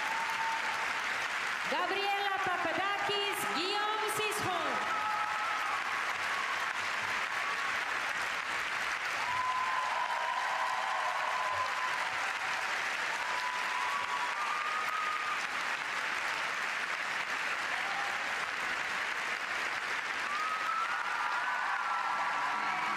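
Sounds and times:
faint cheers: 0.0s - 1.2s, 2.8s - 8.1s, 9.0s - 15.9s, 17.6s - 18.6s, 20.1s - 22.9s
audience applauding: 0.0s - 22.9s.

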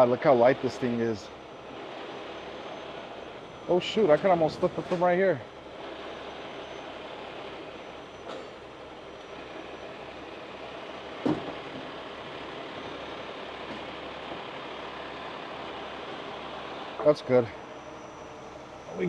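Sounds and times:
tow truck engine running: 0.0s - 19.0s.

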